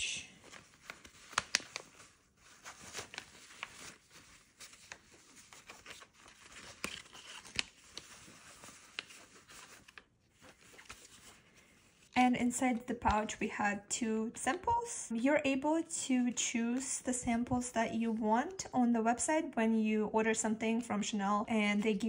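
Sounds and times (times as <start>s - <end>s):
nylon pouch rustling: 0.4s - 12.2s.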